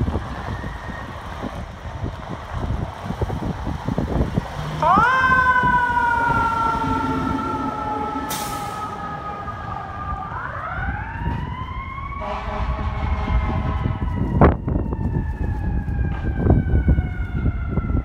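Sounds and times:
diesel engine rumbling: 0.0s - 18.0s
fire engine siren wailing: 0.0s - 18.0s
horn blast: 5.9s - 9.0s, 12.1s - 14.1s.

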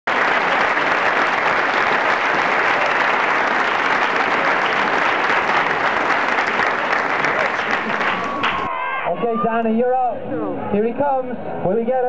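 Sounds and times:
crowd applauding: 0.1s - 9.0s.

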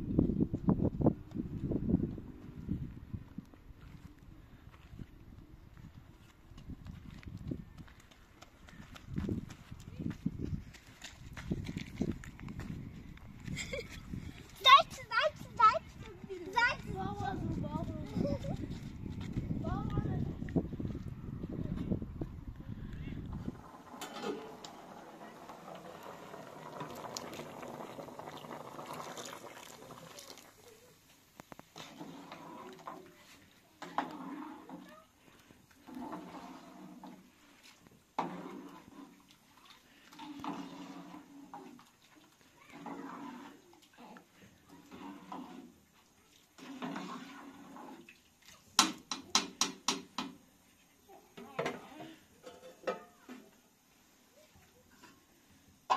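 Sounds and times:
liquid boiling in metal pot: 23.2s - 50.6s
rice slurry pouring: 23.5s - 30.9s.

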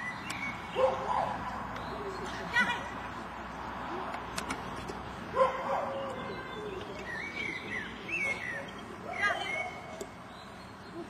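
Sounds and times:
bird chirping: 0.0s - 2.7s, 5.4s - 11.0s
dog barking: 0.8s - 1.4s, 5.4s - 6.1s.

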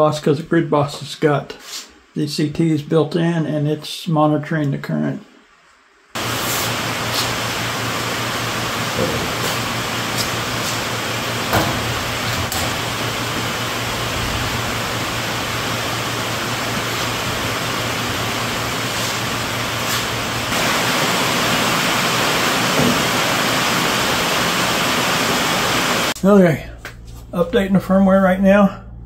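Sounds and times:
low hum: 26.1s - 29.0s.

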